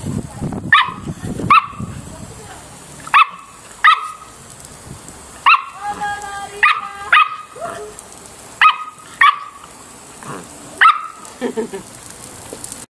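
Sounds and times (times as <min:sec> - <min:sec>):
puppy barking: 0:00.7 - 0:01.9, 0:03.1 - 0:04.3, 0:05.4 - 0:05.8, 0:06.6 - 0:07.9, 0:08.6 - 0:09.6, 0:10.8 - 0:11.3.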